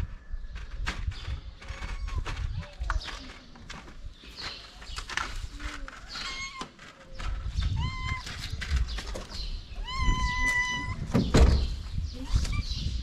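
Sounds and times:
cat meowing: 0:07.7 - 0:08.3, 0:09.8 - 0:11.1
thump: 0:11.1 - 0:11.8.

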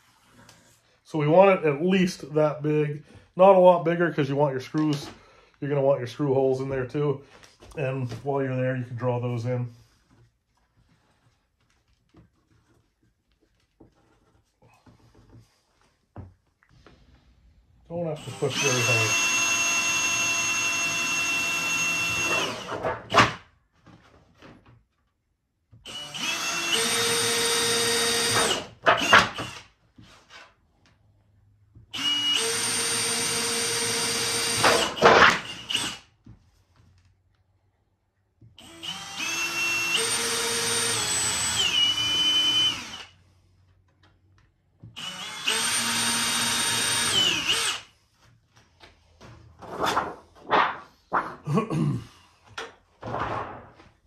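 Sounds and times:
cordless drill boring through steel: 0:18.2 - 0:22.8, 0:25.8 - 0:29.7, 0:31.9 - 0:36.1, 0:38.6 - 0:43.2, 0:45.0 - 0:47.9.

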